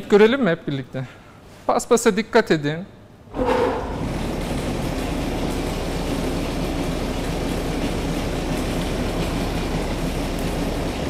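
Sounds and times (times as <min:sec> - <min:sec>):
generator motor humming: 0:03.8 - 0:11.0.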